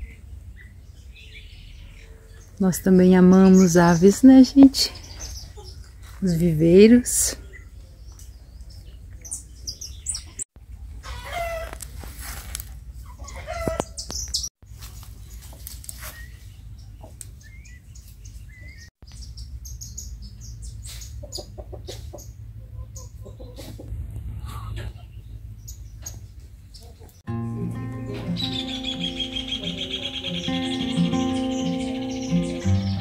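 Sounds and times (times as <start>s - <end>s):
small birds chirping: 0.0s - 10.5s, 13.0s - 33.0s
chickens clucking: 3.4s - 6.0s, 7.3s - 11.8s, 13.0s - 14.2s, 20.8s - 27.2s, 27.9s - 33.0s.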